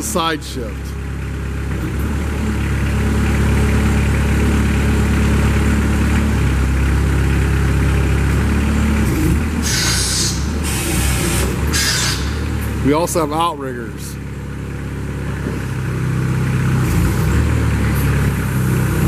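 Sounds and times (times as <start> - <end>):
diesel engine droning under load: 0.0 - 19.0.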